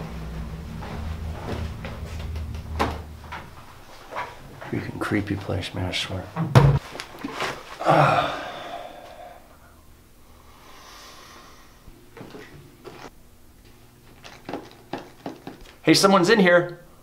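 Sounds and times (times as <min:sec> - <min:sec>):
man sighing: 0:07.8 - 0:09.7.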